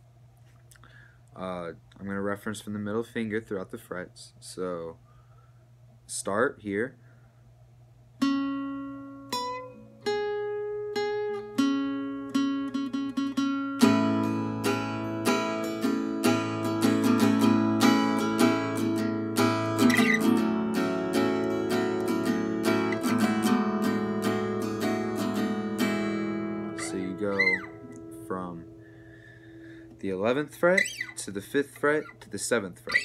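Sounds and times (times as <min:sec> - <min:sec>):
acoustic guitar riff: 0:08.2 - 0:33.0.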